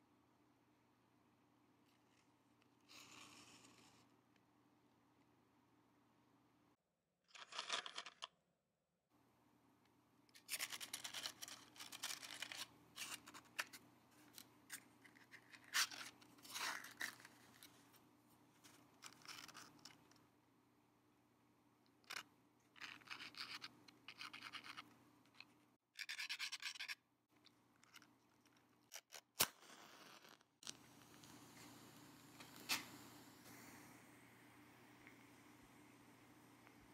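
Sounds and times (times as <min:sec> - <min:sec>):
match flame hiss: 0:02.9 - 0:04.0, 0:29.4 - 0:36.8
matches rattling in matchbox: 0:10.4 - 0:13.7
match being struck: 0:29.4 - 0:33.8.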